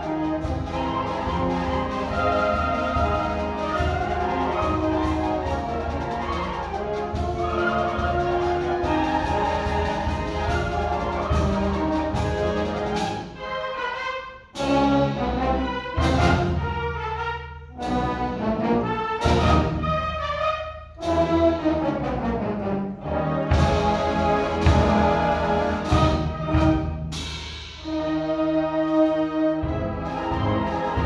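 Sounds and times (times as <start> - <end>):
concert band playing: 0.0 - 13.9, 23.1 - 31.0.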